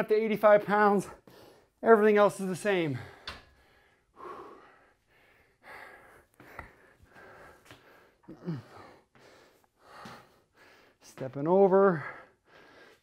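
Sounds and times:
man breathing hard: 0:01.2 - 0:01.8, 0:02.9 - 0:11.0, 0:11.8 - 0:13.0.

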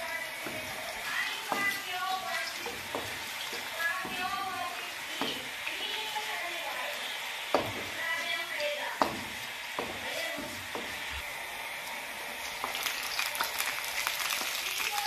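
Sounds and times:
oil sizzling in a wok: 0:00.0 - 0:15.0
wooden spatula knocking on pan: 0:00.4 - 0:05.7, 0:07.5 - 0:08.2, 0:09.0 - 0:11.1.

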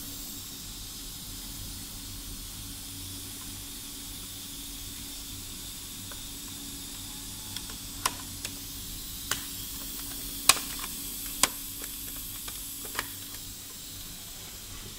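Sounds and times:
steady hiss: 0:00.0 - 0:14.9
plastic parts clicking: 0:07.6 - 0:08.6, 0:09.3 - 0:13.4.

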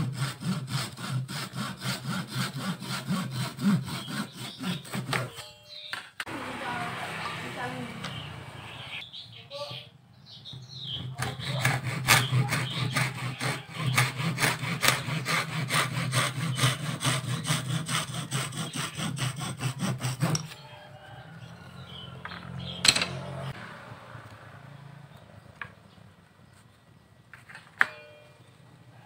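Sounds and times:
hand saw cutting bamboo: 0:00.0 - 0:05.4, 0:10.9 - 0:20.6.

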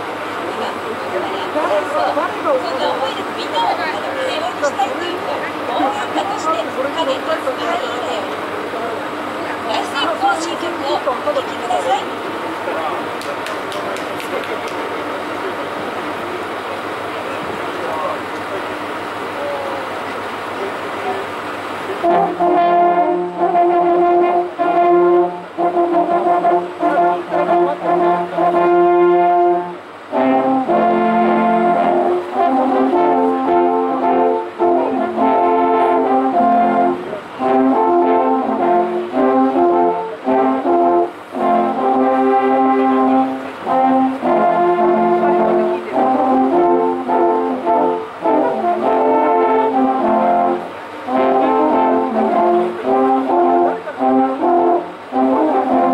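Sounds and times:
alphorns playing: 0:00.0 - 0:55.9.

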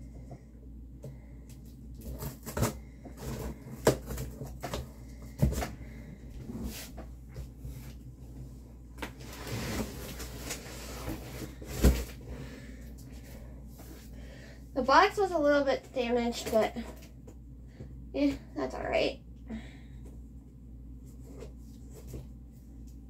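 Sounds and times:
scraping and rustling: 0:09.0 - 0:12.4.

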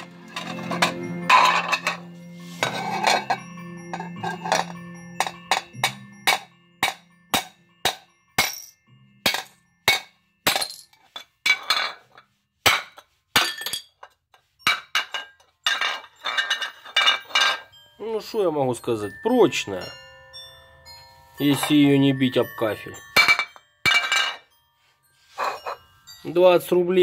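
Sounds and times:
broken shards rattling: 0:00.0 - 0:03.4, 0:04.0 - 0:17.6, 0:23.2 - 0:24.4
ceramic plate striking tile floor: 0:00.4 - 0:03.4, 0:09.3 - 0:14.0, 0:23.2 - 0:24.4.

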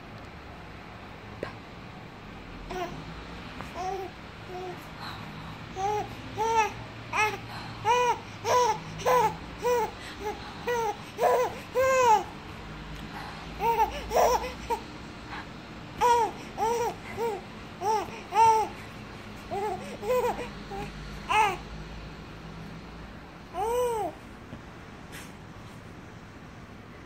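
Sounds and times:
baby babbling and squealing: 0:05.7 - 0:12.3, 0:13.6 - 0:14.8, 0:16.0 - 0:18.8, 0:19.5 - 0:21.6, 0:23.6 - 0:24.2.

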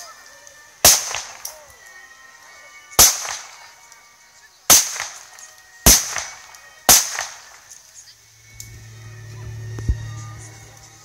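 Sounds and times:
gunshots with echo: 0:00.8 - 0:01.5, 0:03.0 - 0:03.6, 0:04.7 - 0:05.2, 0:05.9 - 0:07.5.

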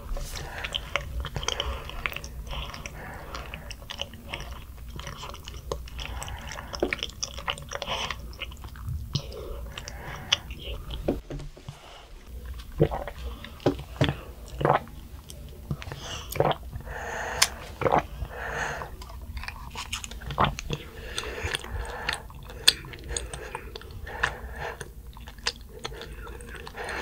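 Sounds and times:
chewing tapioca pearls: 0:00.0 - 0:11.2, 0:12.2 - 0:27.0.

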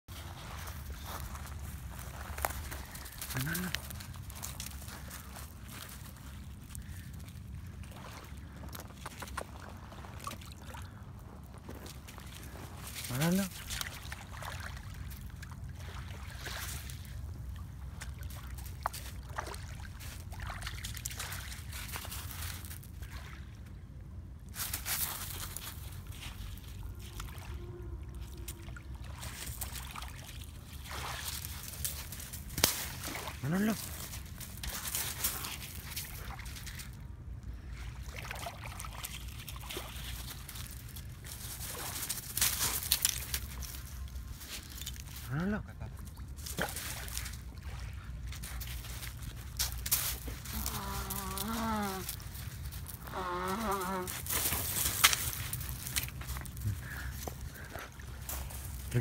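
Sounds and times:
water splashes: 0:00.1 - 0:23.9, 0:24.6 - 0:45.3, 0:45.9 - 0:59.0
sea water sloshing: 0:04.2 - 0:23.7, 0:26.1 - 0:42.1, 0:45.9 - 0:49.6.

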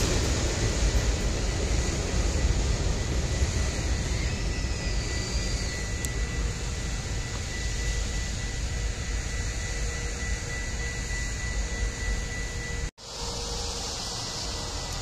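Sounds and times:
passing train rumble: 0:00.0 - 0:10.9
thin high whine: 0:00.0 - 0:15.0.

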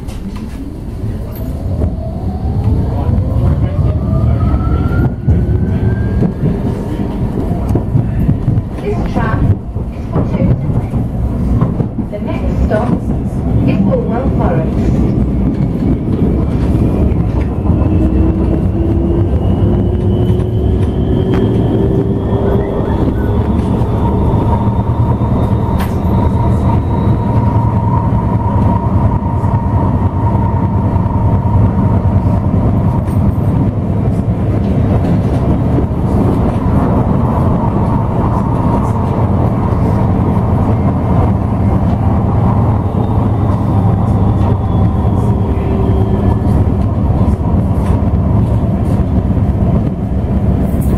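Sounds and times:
tram wheels rumbling on rail: 0:00.0 - 0:50.9.

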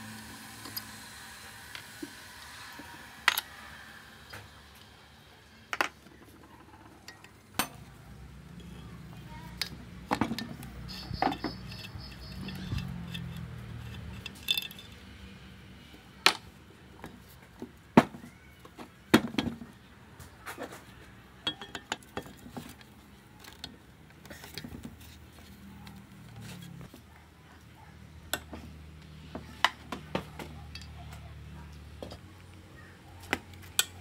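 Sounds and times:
metal tools clinking on workbench: 0:10.2 - 0:15.0, 0:21.4 - 0:22.5.

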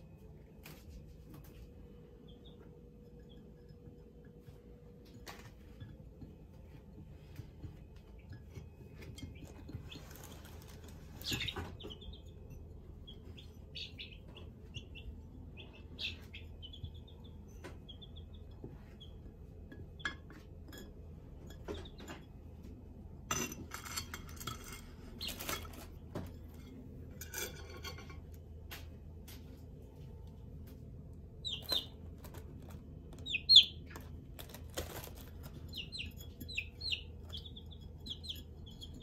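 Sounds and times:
chicks peeping: 0:00.7 - 0:05.8, 0:07.1 - 0:19.2, 0:25.0 - 0:25.8, 0:31.4 - 0:39.0.

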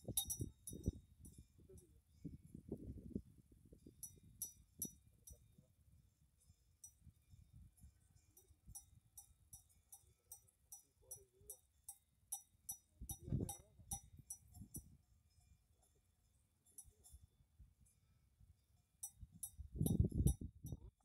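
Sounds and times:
metal bells clinking: 0:00.0 - 0:01.8.

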